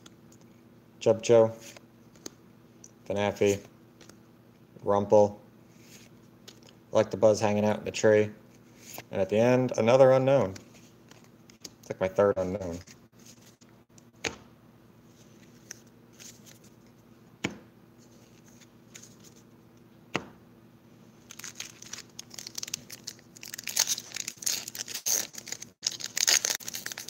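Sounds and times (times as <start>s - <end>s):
foil wrapper crinkling and tearing: 21.3s - 27.0s.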